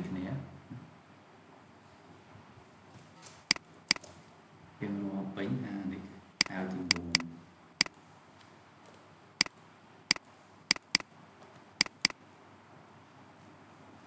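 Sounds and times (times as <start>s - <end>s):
computer mouse clicking: 6.4s - 7.2s, 10.7s - 11.0s, 11.8s - 12.2s.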